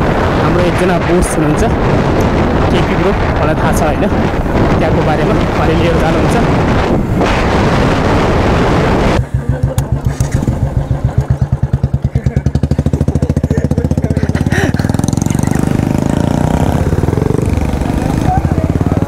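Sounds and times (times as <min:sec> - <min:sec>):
rushing wind-like noise: 0:00.0 - 0:19.0
motorcycle engine idling: 0:09.2 - 0:19.0.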